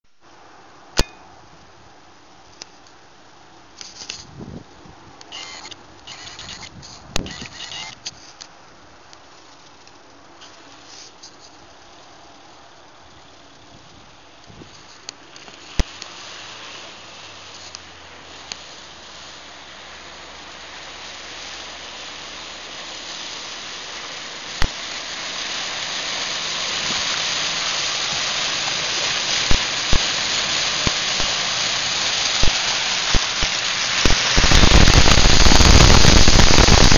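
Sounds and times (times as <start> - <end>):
car splashing through mud: 15.6 - 34.4
loud harsh noise: 27.9 - 36.9.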